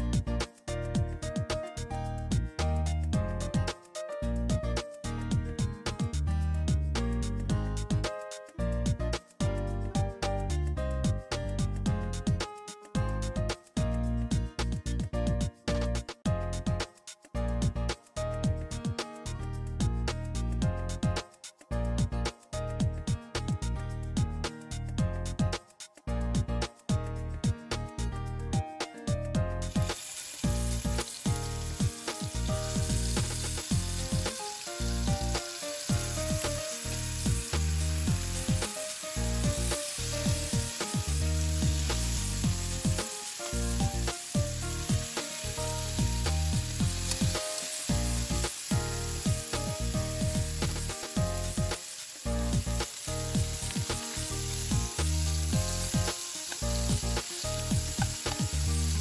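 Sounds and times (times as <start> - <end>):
meat sizzling in skillet: 29.6 - 59.0.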